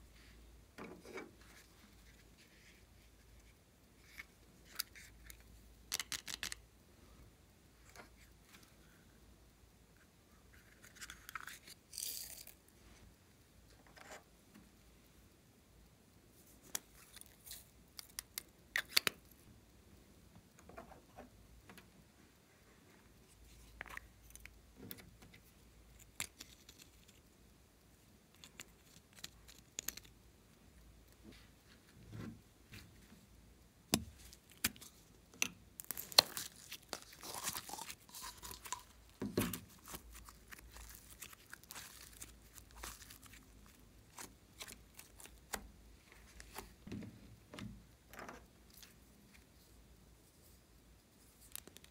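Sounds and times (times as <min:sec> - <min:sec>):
plastic crinkling and tearing: 0:35.8 - 0:45.6.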